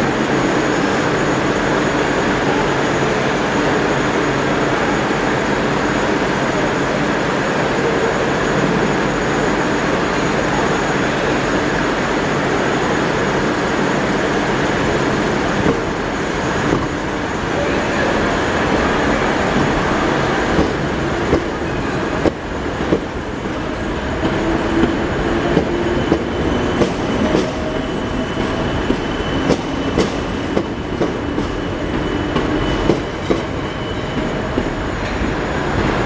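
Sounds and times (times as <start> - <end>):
train rolling rumble: 0.0 - 36.0.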